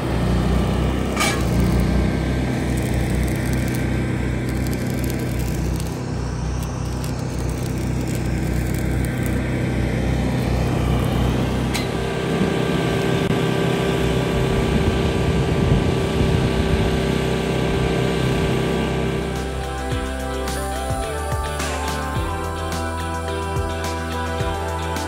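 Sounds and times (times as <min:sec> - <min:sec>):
engine running steadily: 0:00.0 - 0:25.0.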